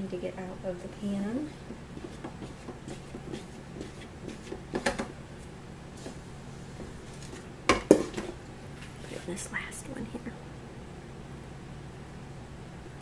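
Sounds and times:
spatula scraping metal bowl: 1.4 - 4.8.

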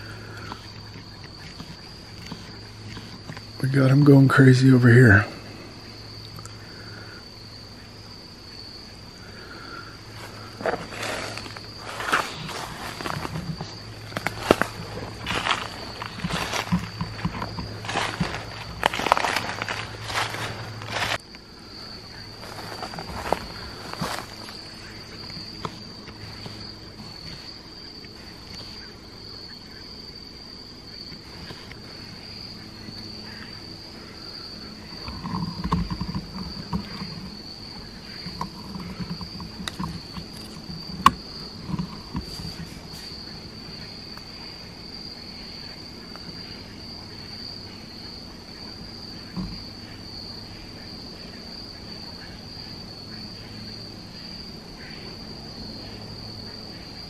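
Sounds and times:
insect chorus droning: 0.0 - 57.0
rustling and knocking: 10.6 - 21.2.

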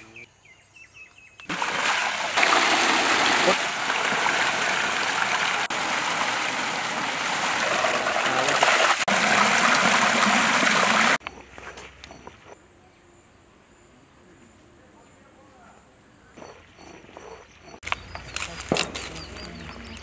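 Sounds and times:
water gushing from pipe: 1.5 - 11.2
water splashing through baskets: 1.5 - 11.2.

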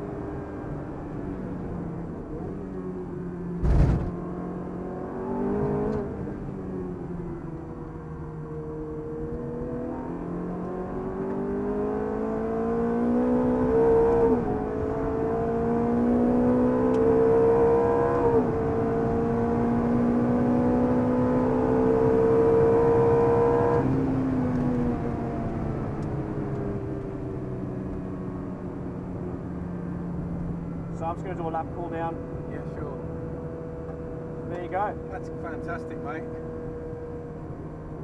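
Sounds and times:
car engine accelerating hard: 0.0 - 29.5.

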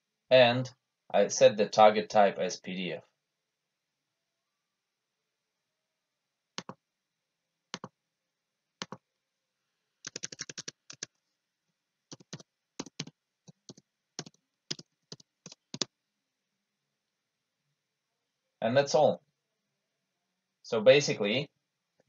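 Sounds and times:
typing on computer keyboard: 6.6 - 6.8, 7.7 - 7.9, 8.8 - 9.0, 10.0 - 11.2, 12.1 - 15.9.

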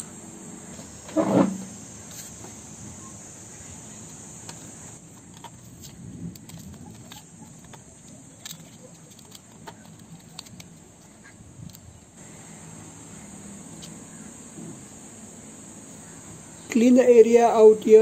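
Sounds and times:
plastic packaging clicks: 4.5 - 10.9.

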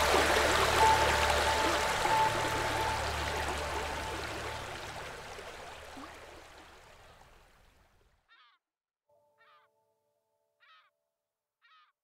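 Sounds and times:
stream water rushing over stones: 0.0 - 7.9.

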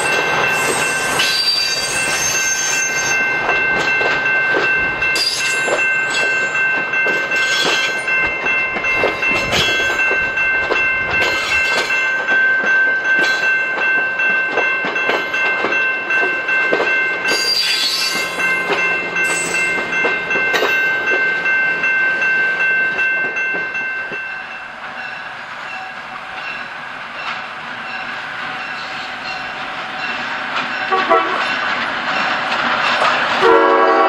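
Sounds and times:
high-pitched ringing tone: 0.0 - 4.5
wheels clacking over rail joints: 0.0 - 21.9
distant train: 0.0 - 34.0.

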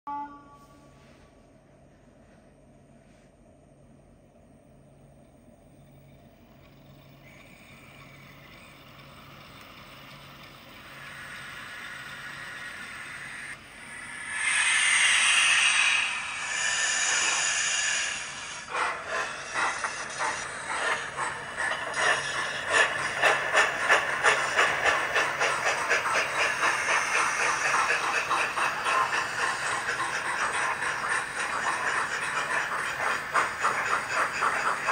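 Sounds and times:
faint steady hum: 0.1 - 21.4
model steam locomotive chuffing: 5.3 - 34.9
hiss: 10.7 - 34.9.

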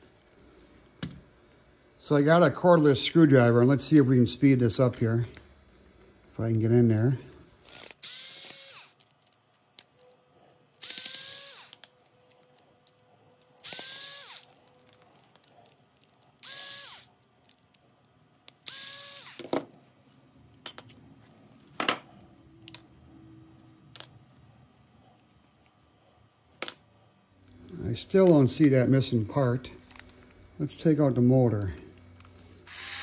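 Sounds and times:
cordless screwdriver whirring: 7.6 - 9.0, 10.8 - 12.5, 13.4 - 14.8, 16.4 - 17.1, 18.5 - 19.5, 32.7 - 33.0.

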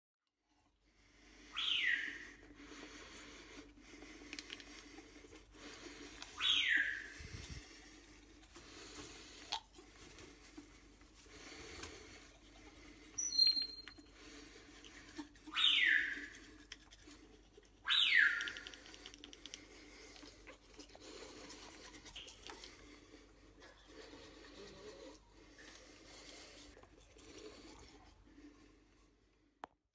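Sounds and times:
parrot high chirp: 1.6 - 2.2, 6.4 - 7.2, 13.2 - 14.0, 15.5 - 16.3, 17.8 - 18.7
toothbrush scrubbing teeth: 2.2 - 28.8.

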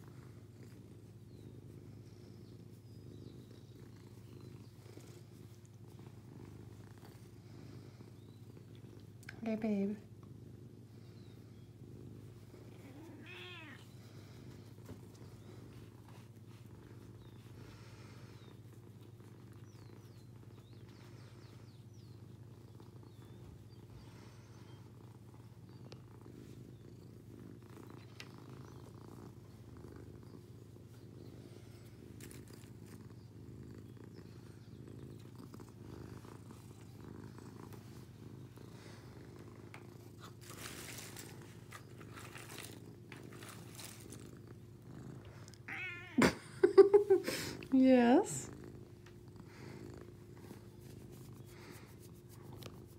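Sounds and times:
cat purring: 0.0 - 52.9.

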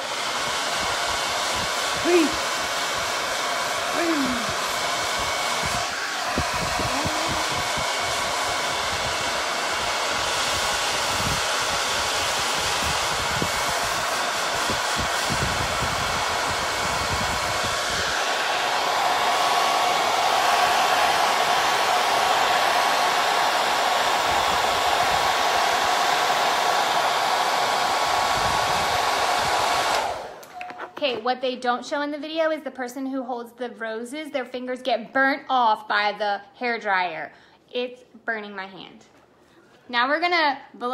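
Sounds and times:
hair dryer blowing air: 0.0 - 31.0.

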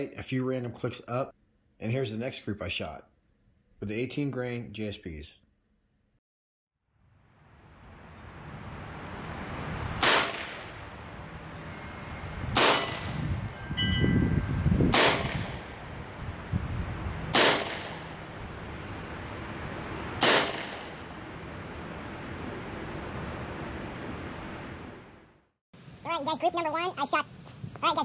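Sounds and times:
air pistol shots: 10.0 - 10.6, 12.6 - 13.1, 14.9 - 15.7, 17.3 - 18.1, 20.2 - 21.0.

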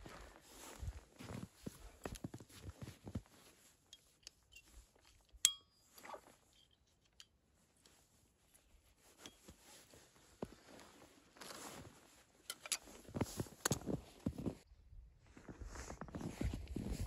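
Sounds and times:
ringing clink of metal or glass: 5.4 - 5.9.

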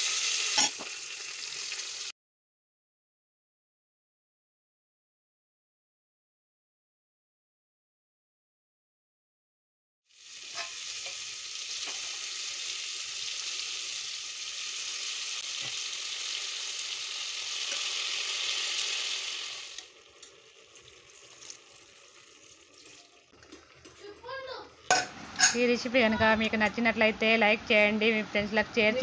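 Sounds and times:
vegetables sizzling in oil: 0.0 - 2.1, 10.1 - 26.0.

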